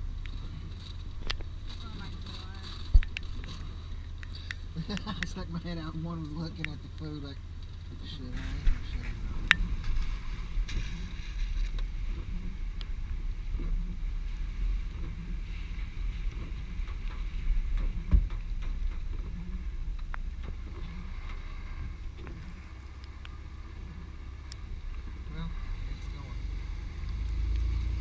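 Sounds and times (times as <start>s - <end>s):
vehicle rumble on wet road: 0.0s - 28.0s
wind buffeting microphone: 0.0s - 28.0s
sharp ticks: 2.9s - 7.1s
loud thump: 17.2s - 19.4s.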